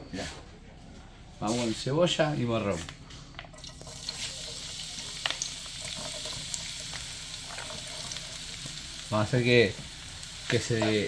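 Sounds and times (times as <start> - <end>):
vegetables sizzling in hot oil: 3.6 - 11.0.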